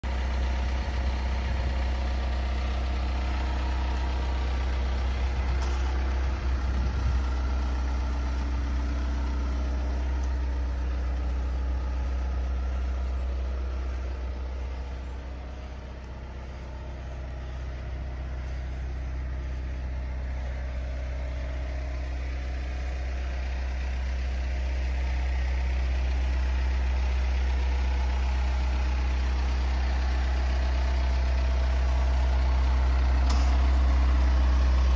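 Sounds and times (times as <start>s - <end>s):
diesel engine idling: 0.0s - 34.9s.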